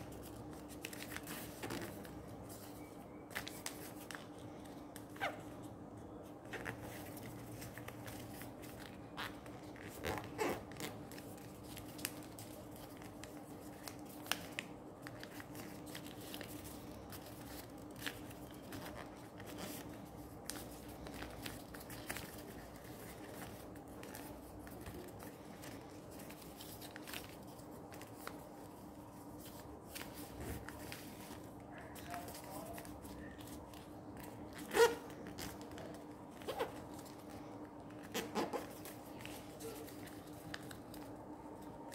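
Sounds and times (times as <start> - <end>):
paper rustling and crinkling: 0.0 - 41.9.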